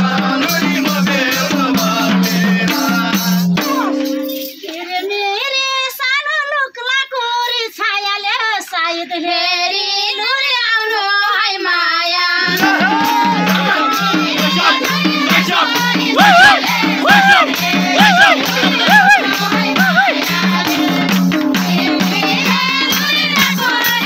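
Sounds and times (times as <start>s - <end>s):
hand drum beat: 0.0s - 4.3s, 12.5s - 24.0s
jingle tambourine: 0.0s - 5.1s, 12.5s - 24.0s
woman singing folk song: 4.6s - 12.9s.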